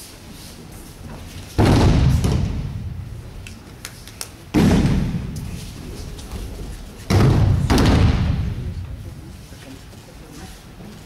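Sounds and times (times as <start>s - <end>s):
bodies thudding onto mats: 1.4s - 2.9s.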